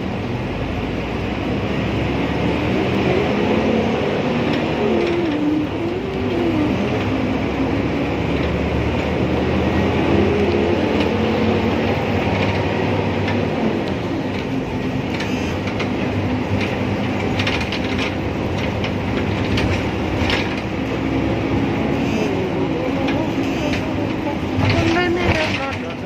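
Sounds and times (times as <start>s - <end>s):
bus engine and road rumble: 0.0s - 26.0s
bus body clicks and rattles: 4.4s - 9.8s, 10.4s - 21.2s, 22.6s - 26.0s.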